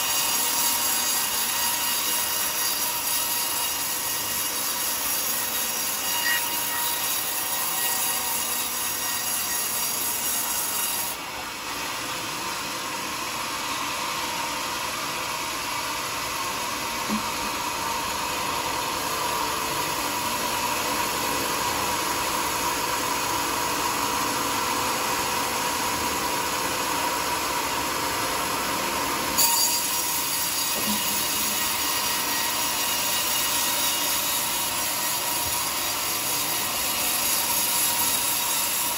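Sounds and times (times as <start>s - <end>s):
band saw cutting log: 0.0s - 38.9s.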